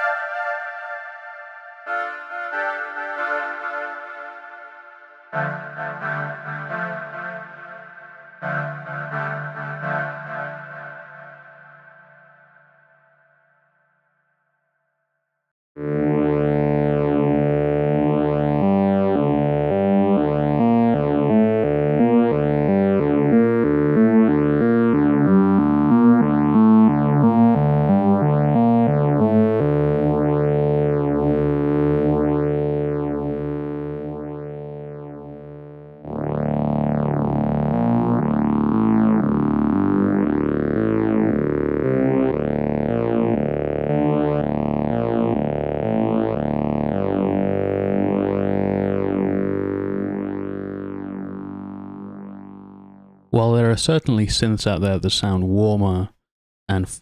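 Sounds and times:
string synth with phaser: 15.8s - 53.0s.

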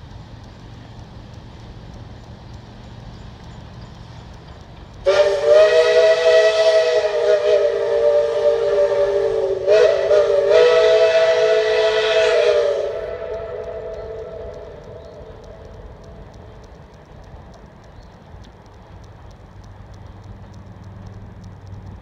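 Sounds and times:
steam locomotive whistle: 5.0s - 15.7s.

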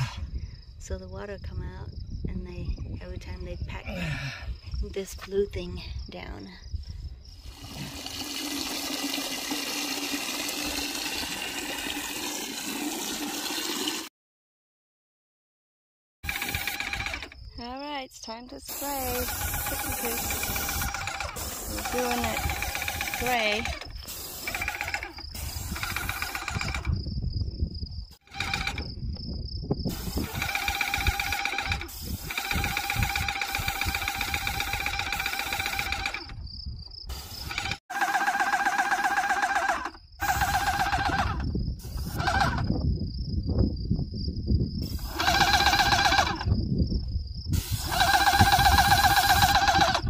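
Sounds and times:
paint sprayer pulsing buzz: 16.3s - 17.4s, 18.7s - 26.9s, 28.2s - 28.8s, 30.0s - 36.3s, 37.3s - 41.4s, 44.9s - 46.4s, 47.6s - 50.0s.

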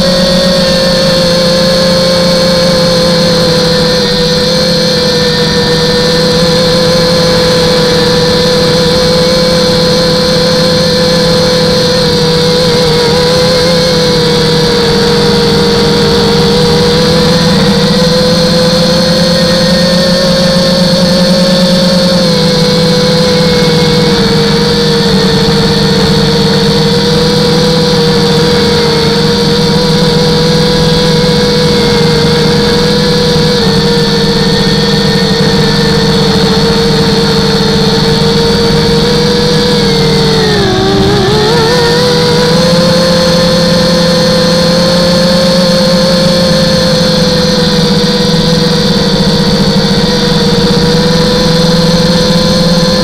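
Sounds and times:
drone motors whining: 0.0s - 53.0s.

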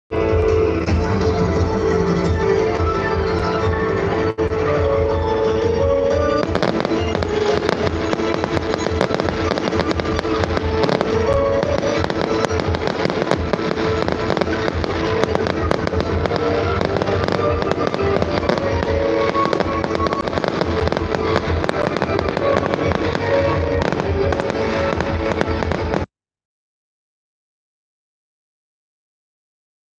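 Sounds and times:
music playing: 0.1s - 26.1s
fireworks bangs and pops: 6.0s - 26.1s.

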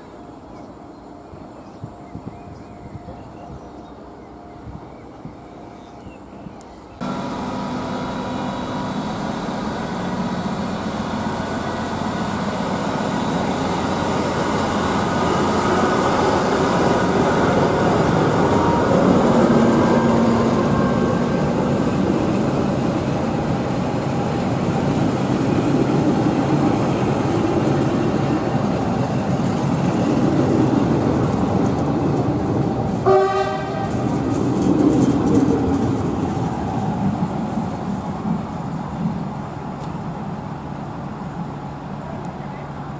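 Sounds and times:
train wheels on rails: 0.0s - 42.9s
train horn toot: 33.0s - 34.0s.

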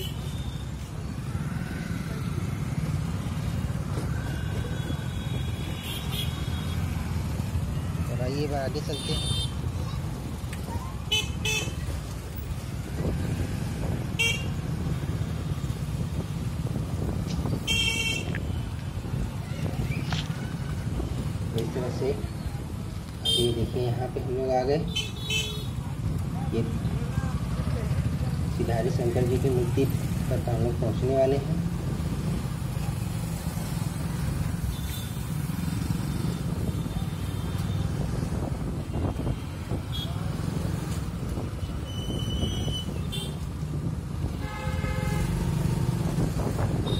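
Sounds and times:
road noise: 0.0s - 46.9s
traffic rumble: 0.0s - 46.9s
vehicle horn beeping: 44.4s - 45.8s.

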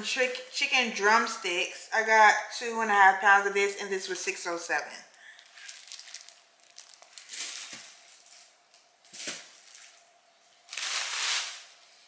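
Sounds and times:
plastic bags crinkling: 5.2s - 11.8s.

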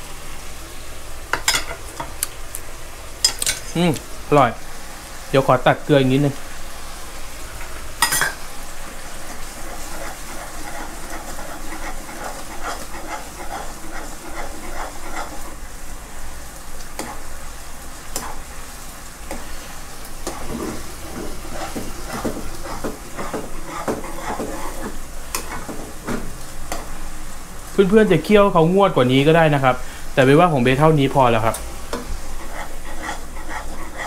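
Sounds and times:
sauce bubbling and sizzling in a pan: 0.0s - 34.0s
metal spoon stirring and scraping: 7.6s - 8.4s, 9.2s - 15.6s, 17.0s - 17.3s, 20.2s - 26.2s, 31.9s - 34.0s.

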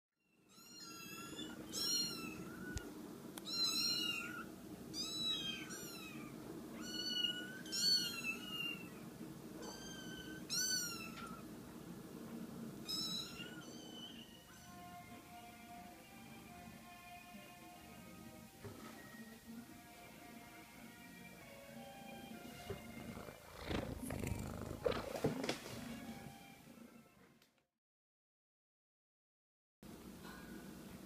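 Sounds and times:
kittens mewing: 22.8s - 25.3s.

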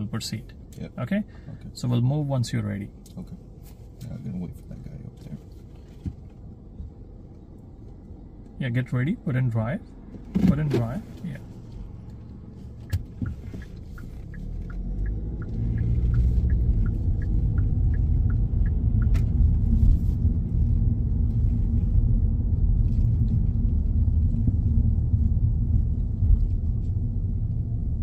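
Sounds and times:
car road and engine rumble: 0.0s - 28.0s
turn signal ticking: 11.7s - 20.5s.

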